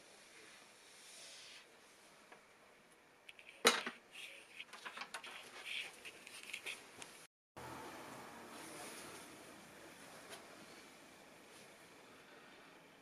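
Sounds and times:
handling noise clicks and rustles: 3.3 - 7.2.

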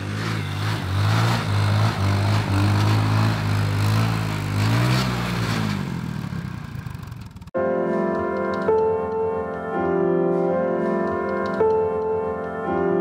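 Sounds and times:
engine revving: 0.0 - 7.5.

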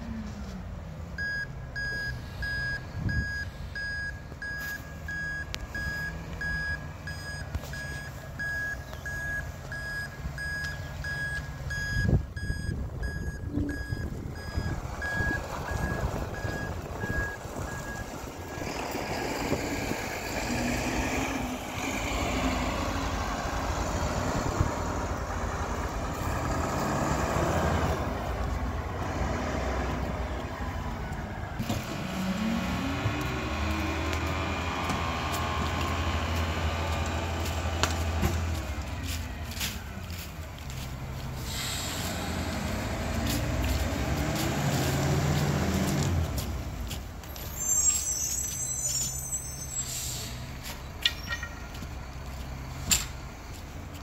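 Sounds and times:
reversing alarm beeping: 1.2 - 18.1.

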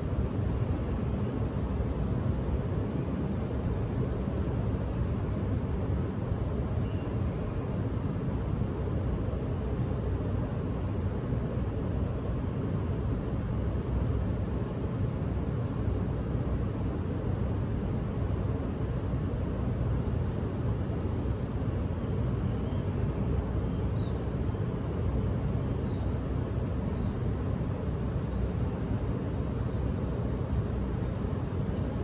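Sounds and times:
low city ambient rumble: 0.0 - 32.0.

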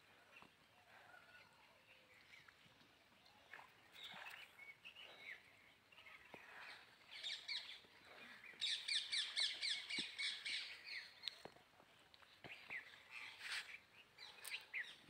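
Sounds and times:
small birds chirping: 3.2 - 15.0.

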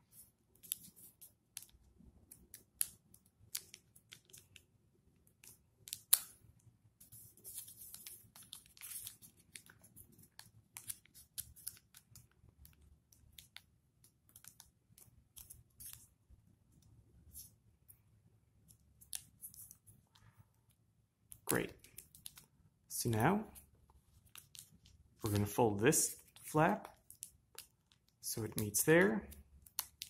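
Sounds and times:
paper being folded: 7.1 - 12.3.

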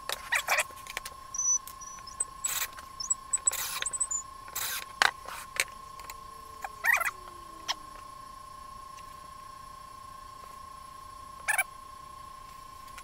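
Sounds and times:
short high chirps: 1.4 - 4.2
steady high tone: 1.4 - 4.2, 6.1 - 8.5.

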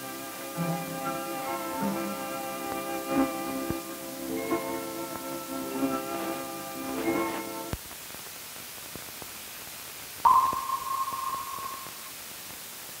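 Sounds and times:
film soundtrack hiss and crackle: 0.0 - 13.0
single high tone: 10.3 - 12.1.

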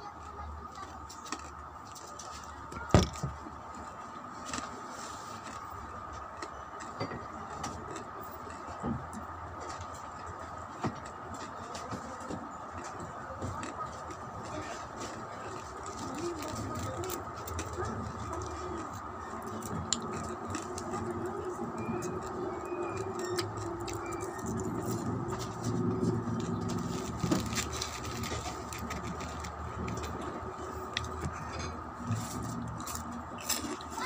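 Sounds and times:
chewing crunchy snacks: 0.7 - 2.8, 4.3 - 34.0
plastic bag crinkling: 26.4 - 30.2.

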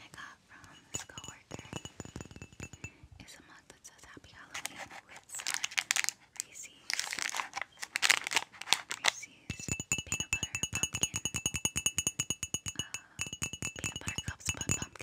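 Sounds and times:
plastic wrappers crinkling: 4.6 - 9.3
background music with ticking beat: 9.6 - 15.0.

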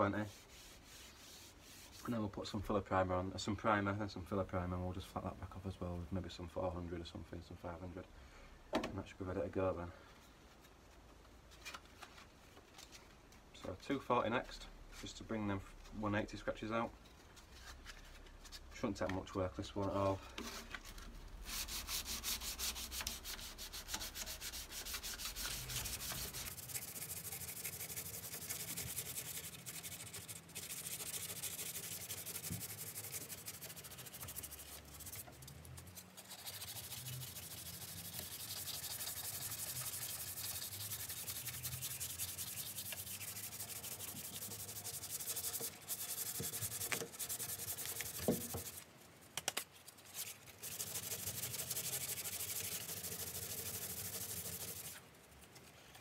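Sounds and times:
hand sanding with sandpaper: 0.0 - 2.3, 21.4 - 48.9, 50.0 - 55.0.

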